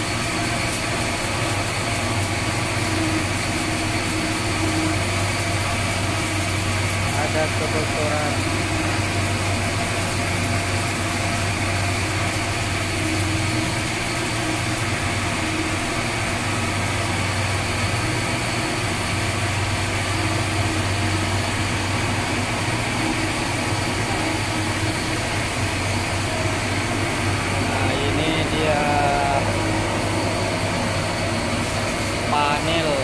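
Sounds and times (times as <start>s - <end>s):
engine room machinery running: 0.0s - 33.0s
ventilation blowers: 0.0s - 33.0s
deep steady hum: 12.9s - 33.0s.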